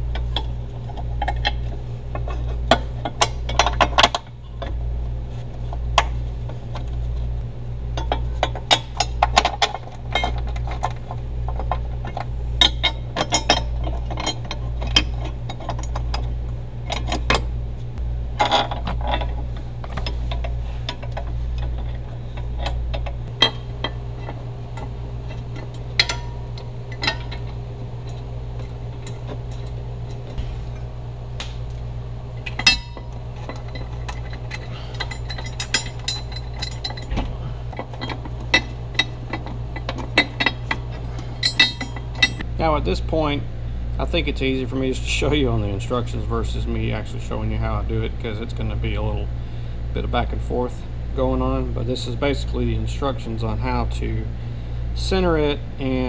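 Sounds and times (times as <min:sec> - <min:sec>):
low hum: 0:00.0 - 0:56.0
metal bolts clinking: 0:00.1 - 0:04.8, 0:08.0 - 0:17.6, 0:18.4 - 0:42.5.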